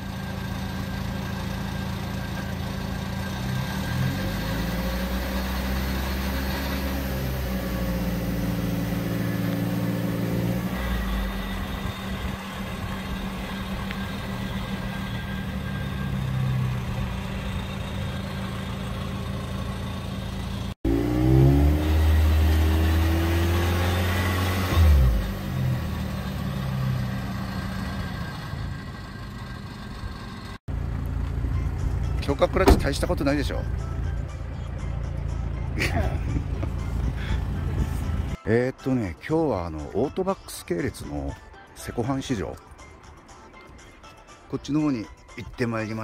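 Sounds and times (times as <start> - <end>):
car engine revving: 3.1 - 31.1.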